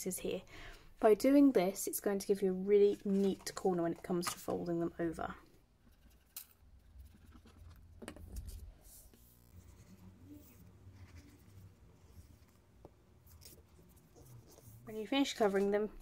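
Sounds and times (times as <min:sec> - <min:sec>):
paper rustling: 0:02.8 - 0:04.5.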